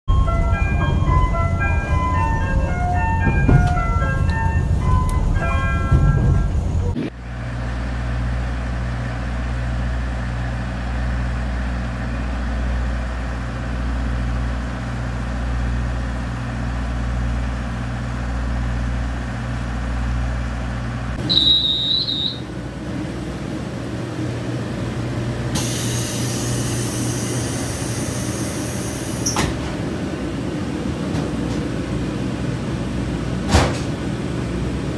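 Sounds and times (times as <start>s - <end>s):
melodic music jingle: 0.1s - 6.8s
diesel railcar engine idling: 0.1s - 34.9s
hiss: 25.6s - 29.3s.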